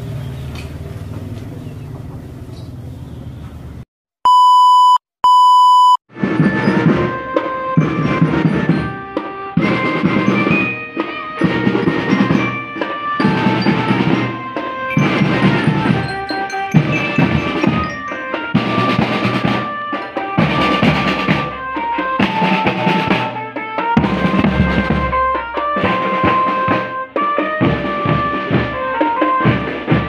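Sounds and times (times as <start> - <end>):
electronic beeps: 4.3 - 6.0
marching drums: 6.1 - 30.0.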